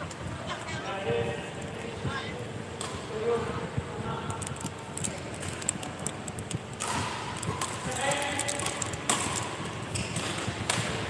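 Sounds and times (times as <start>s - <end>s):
voices in a hall: 0.0s - 9.9s
racket hitting shuttlecock: 6.4s - 11.0s.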